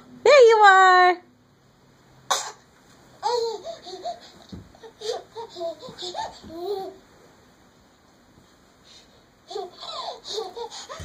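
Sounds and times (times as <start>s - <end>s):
baby laughing: 3.2s - 7.0s, 9.5s - 11.0s.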